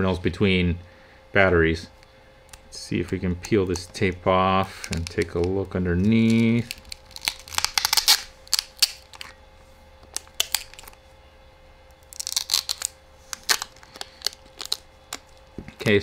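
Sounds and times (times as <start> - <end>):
adhesive tape peeling: 3.4 - 9.4, 10.0 - 11.0, 12.0 - 15.5.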